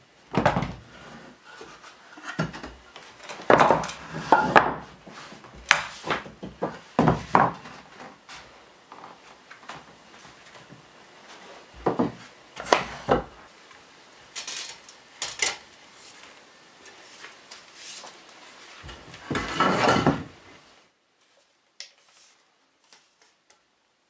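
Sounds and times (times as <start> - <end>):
wood scraping: 0.4 - 13.4, 15.9 - 20.4.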